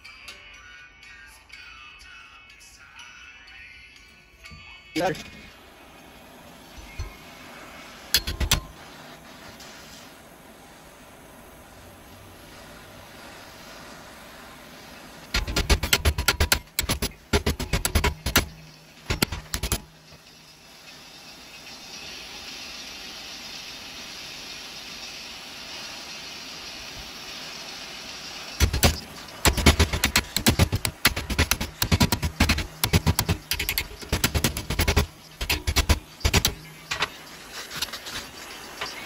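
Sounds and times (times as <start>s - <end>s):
gas torch hissing: 5.0s - 39.0s
hammer tapping on metal: 15.4s - 19.9s.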